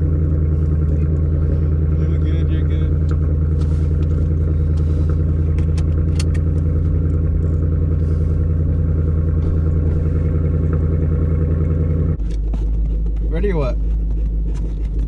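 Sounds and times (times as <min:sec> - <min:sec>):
car engine idling: 0:00.0 - 0:15.0
seatbelt clicking and rattling: 0:03.0 - 0:06.8, 0:12.2 - 0:15.0.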